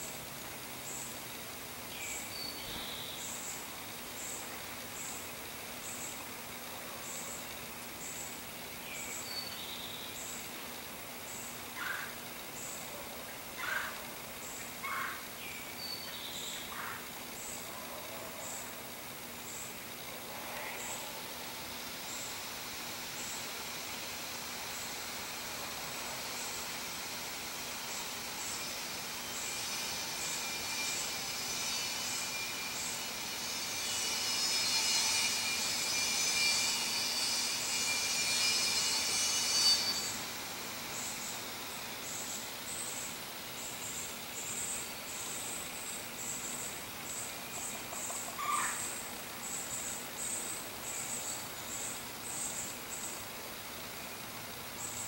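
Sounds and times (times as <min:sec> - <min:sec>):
insects trilling: 0:00.0 - 0:55.0
steady background hiss: 0:00.0 - 0:55.0
birds calling: 0:11.2 - 0:20.0, 0:42.0 - 0:53.3.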